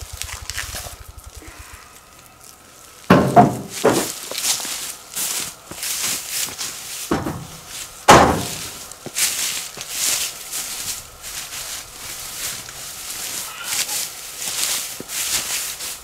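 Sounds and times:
footsteps crunching through leaves: 0.0 - 16.0
dull thuds: 3.1 - 4.2, 7.1 - 8.8.

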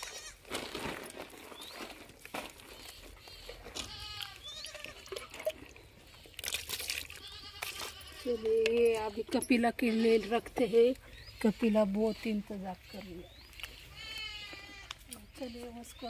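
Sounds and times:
goats bleating: 3.8 - 5.4, 7.0 - 13.0, 13.8 - 15.8.

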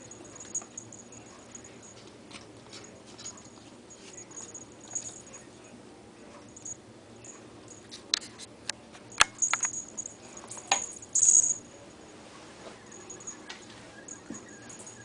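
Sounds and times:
collar bell jingling: 0.0 - 2.1, 2.7 - 5.5, 6.5 - 8.0, 9.1 - 12.1, 12.8 - 15.0.

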